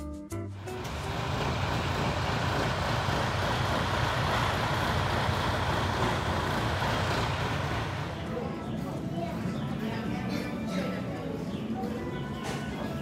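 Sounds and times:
bus engine running: 0.6s - 10.0s.

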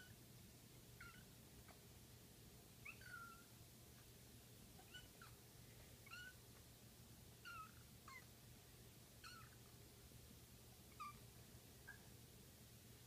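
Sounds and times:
kitten meowing: 4.8s - 5.4s, 6.0s - 6.4s, 7.4s - 8.3s, 9.2s - 9.6s.

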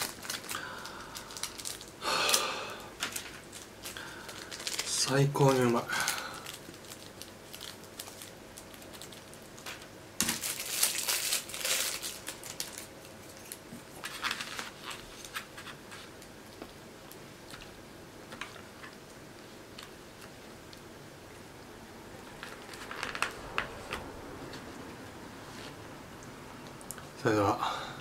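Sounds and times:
plastic wrapper crinkling and tearing: 0.0s - 2.4s, 3.0s - 17.7s, 22.3s - 24.0s.

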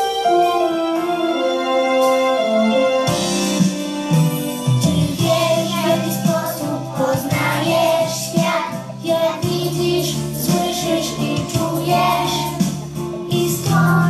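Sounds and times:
musical accompaniment: 0.0s - 14.0s
children singing in unison: 5.0s - 14.0s.

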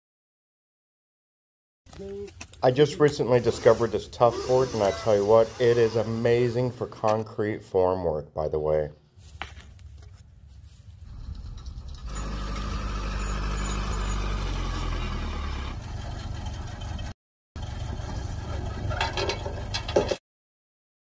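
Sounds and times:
truck engine running: 11.0s - 20.0s
metal clanks: 17.9s - 20.2s.

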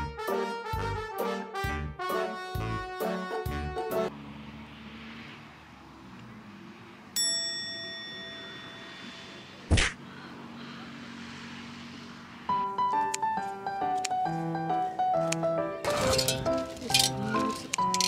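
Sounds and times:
brass-led background music: 0.0s - 4.1s, 13.4s - 18.0s
bright bell-like ding: 7.2s - 9.3s.

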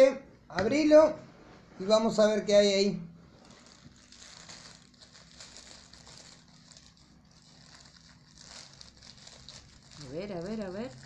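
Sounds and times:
plastic bag rustling and crinkling: 3.3s - 11.0s.

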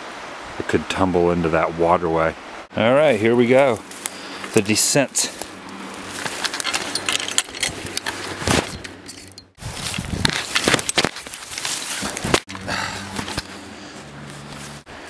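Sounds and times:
footsteps in wet leaves: 3.0s - 7.0s, 9.5s - 15.0s.

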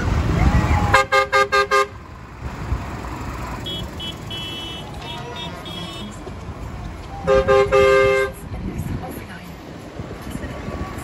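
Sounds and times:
tractor engines rumbling: 0.0s - 11.0s
tractor horn blasts: 0.9s - 2.0s, 3.6s - 6.2s, 7.2s - 8.4s.

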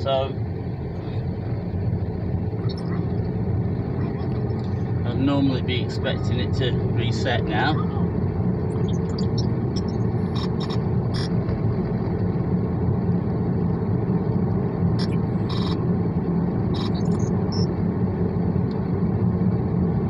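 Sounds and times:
car cabin rumble: 0.0s - 20.0s.

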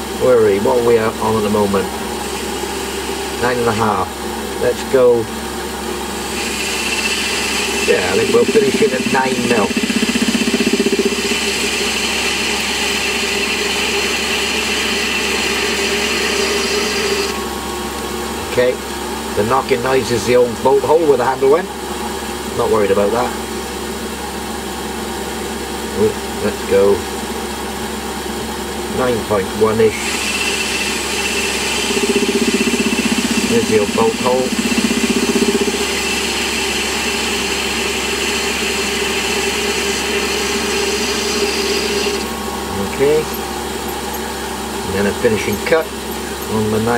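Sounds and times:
machine hum: 0.0s - 20.2s, 28.3s - 46.8s
lathe cutting hiss: 6.1s - 17.4s, 29.8s - 44.3s.

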